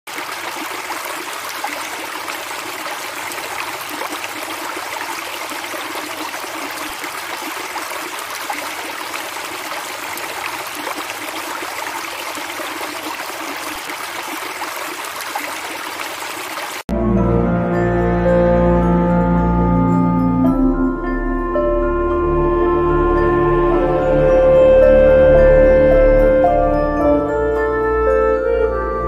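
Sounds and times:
running water splashing: 0.1 - 16.9.

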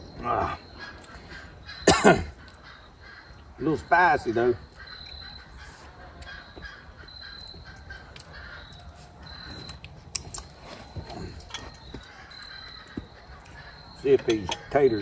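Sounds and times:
distant crows cawing: 0.0 - 15.0
faint high chirp: 4.7 - 15.0.

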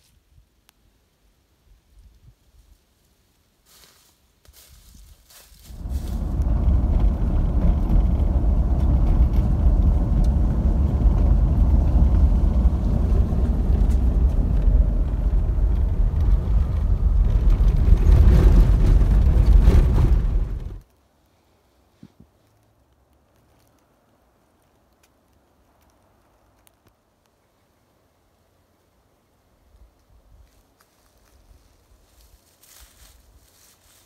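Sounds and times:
vehicle interior rumble: 5.6 - 20.8.

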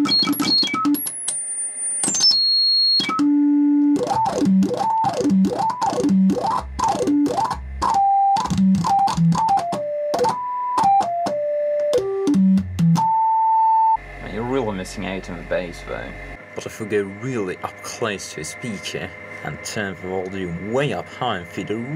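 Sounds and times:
sine tones from speakers: 0.0 - 14.4.

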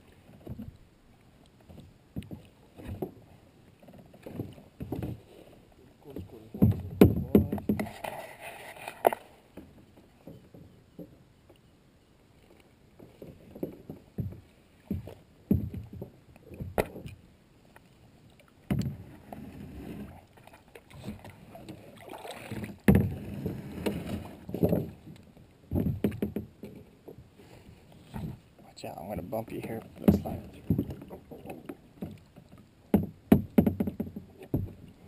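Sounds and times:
paddle water splashes: 0.0 - 35.0
knocks against kayak hull: 6.2 - 8.1, 13.6 - 17.1, 18.6 - 19.1, 22.5 - 25.0, 25.7 - 26.8, 30.0 - 32.2, 32.9 - 34.9.

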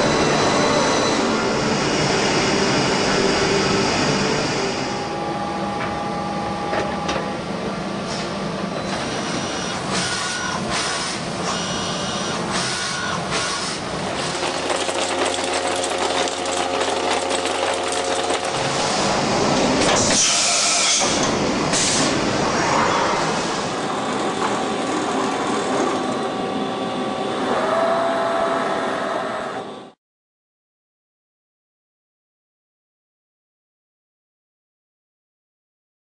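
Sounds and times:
machining centre whirring: 0.0 - 30.0
steady machine hum: 0.0 - 30.0
loud air hiss: 20.0 - 22.3.

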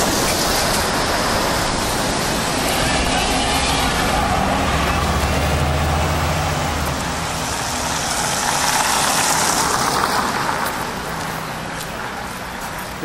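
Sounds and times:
hiss of passing traffic: 0.0 - 13.0
large vehicle engine hum: 0.0 - 13.0.

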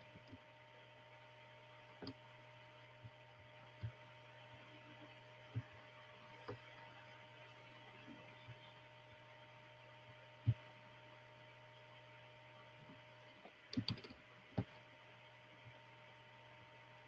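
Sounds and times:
low electrical hum: 0.0 - 17.0
faint clicks and knocks: 0.1 - 0.5, 1.9 - 2.3, 3.0 - 6.9, 12.8 - 14.9.

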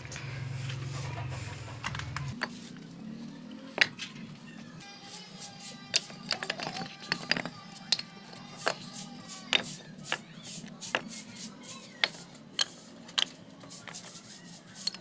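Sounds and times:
bricks and stones clinking: 2.4 - 3.0, 3.6 - 4.4, 5.9 - 10.3, 12.0 - 14.1, 14.8 - 15.0.

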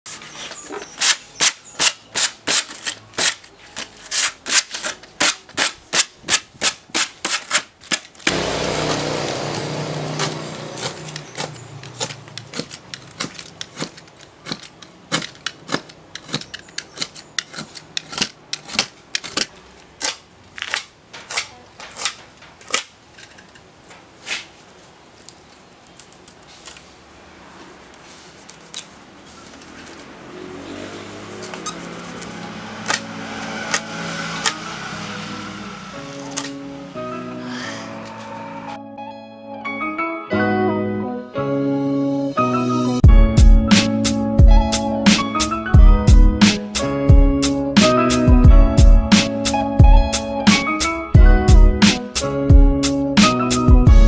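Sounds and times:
knife blade scraping plywood edge: 0.1 - 8.1, 10.2 - 22.9.

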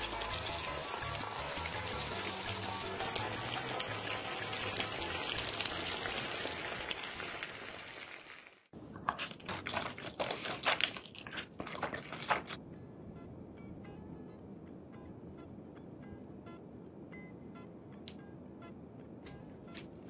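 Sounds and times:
wet eating crackle and drip: 0.0 - 12.6.

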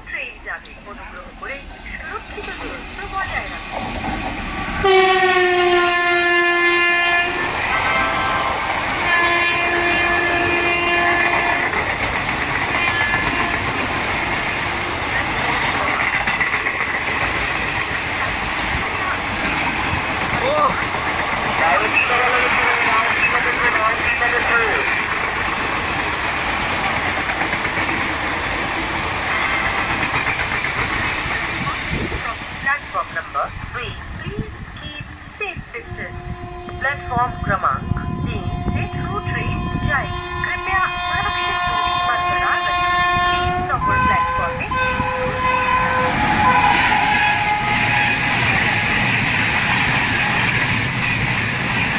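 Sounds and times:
train coaches rumbling and clattering: 0.0 - 51.9
locomotive horn blasts: 4.8 - 11.7, 12.8 - 13.8, 35.8 - 48.4.

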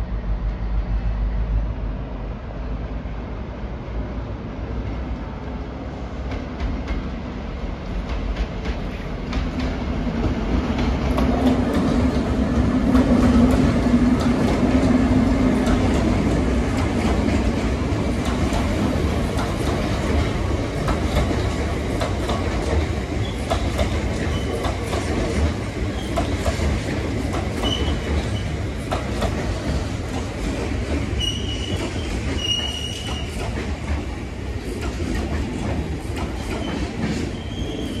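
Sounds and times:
freight train rolling past: 0.0 - 38.0
high wheel squeals: 31.2 - 33.4, 36.6 - 38.0.

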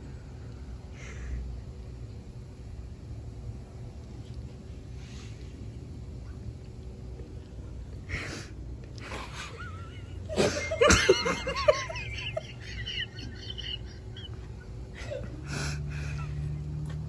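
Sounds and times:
woman giggling: 9.0 - 16.6
woman laughing: 9.0 - 16.6.

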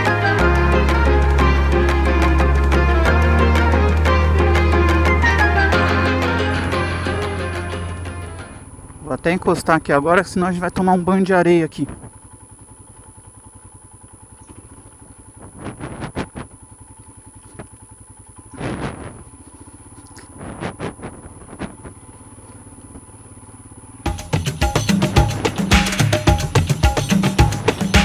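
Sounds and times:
music: 0.0 - 8.6, 24.1 - 28.0
motorcycle engine running: 0.0 - 28.0
rough bursts of road noise: 0.0 - 28.0.

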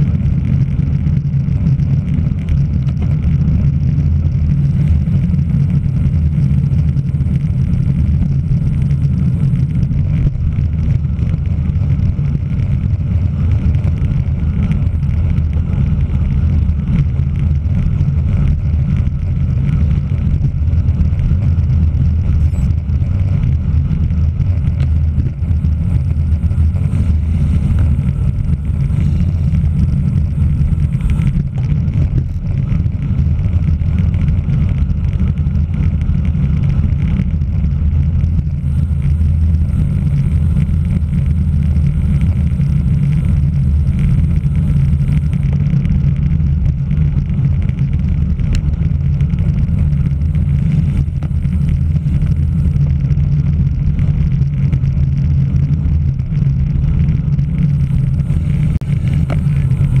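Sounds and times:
wind buffeting microphone: 0.0 - 60.0.

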